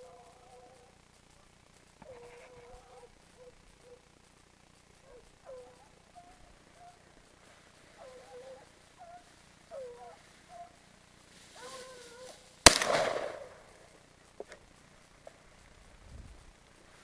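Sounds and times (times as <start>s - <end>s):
dogs baying: 0.0s - 1.1s, 2.0s - 4.2s, 5.0s - 12.5s
loud gunshot: 12.6s - 13.6s.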